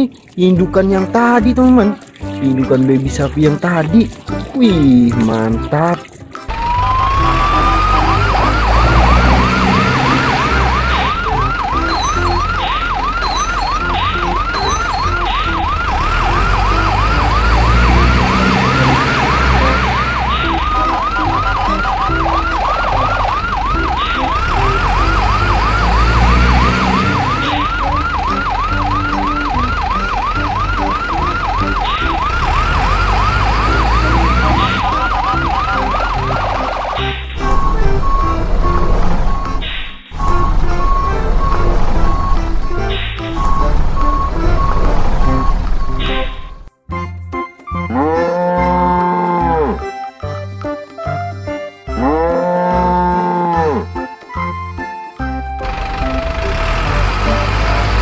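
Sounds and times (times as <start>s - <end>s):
electronic yelp siren: 6.5s - 46.7s.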